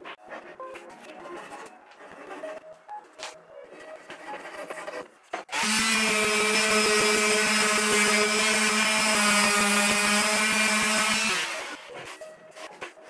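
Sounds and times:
orbital sander running on wood: 5.5s - 11.8s.

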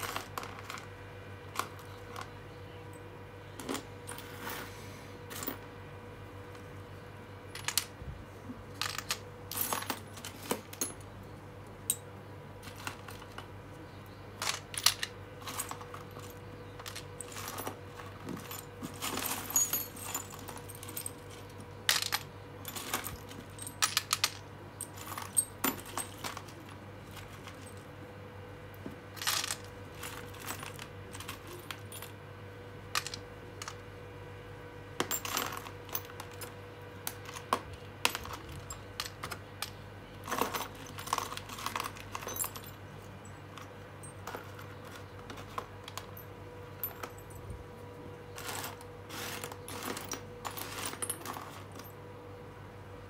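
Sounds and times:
metal screws clinking in tub: 8.8s - 11.0s, 14.4s - 27.8s, 29.2s - 32.1s, 35.0s - 47.4s, 48.3s - 51.9s.

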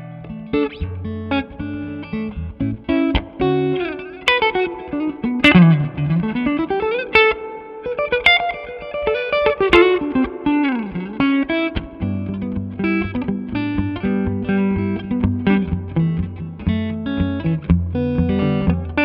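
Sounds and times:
electric guitar chords: 0.0s - 19.0s
electric guitar lead lines: 0.0s - 19.0s.

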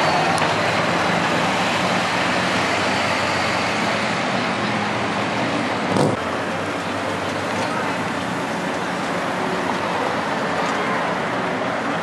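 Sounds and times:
passing traffic: 0.0s - 12.0s
pickup truck engine drone: 0.0s - 12.0s
brief thump: 5.9s - 6.2s.

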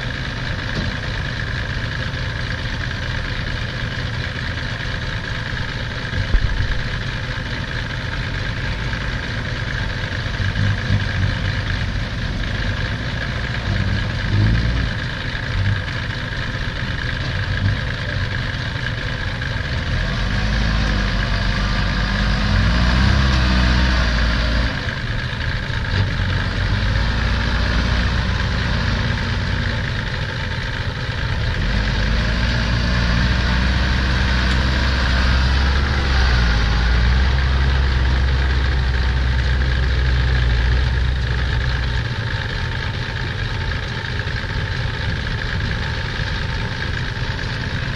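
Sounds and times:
diesel engines idling: 0.0s - 47.9s
engine revving: 9.7s - 16.0s, 19.5s - 25.2s, 25.8s - 30.2s, 31.2s - 47.9s.

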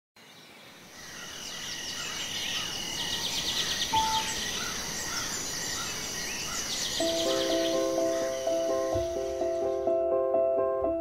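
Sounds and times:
birds chirping and calling: 0.4s - 9.9s
insect drone: 0.7s - 9.9s.

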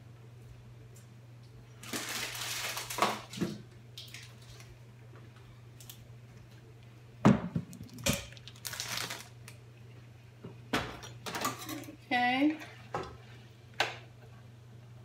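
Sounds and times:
steady low hum: 3.5s - 15.0s.

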